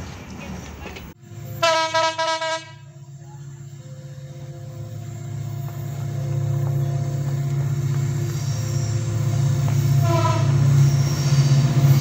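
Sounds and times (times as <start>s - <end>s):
low rumble of train locomotive: 0.0s - 12.0s
locomotive horn blasts: 1.6s - 2.9s, 9.8s - 10.7s.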